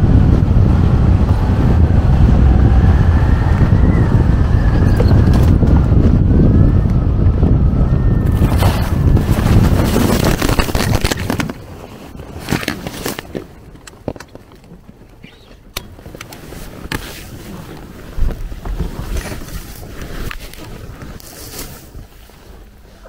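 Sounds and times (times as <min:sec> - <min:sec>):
wind buffeting microphone: 0:00.0 - 0:23.0
grass rubbing against camera: 0:16.0 - 0:23.0.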